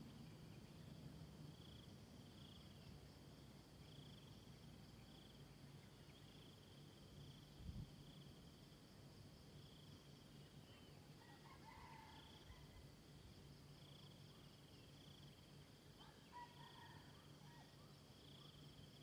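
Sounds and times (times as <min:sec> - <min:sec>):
insects trilling: 0:00.0 - 0:19.0
distant rooster crowing: 0:11.2 - 0:12.8, 0:16.0 - 0:17.8.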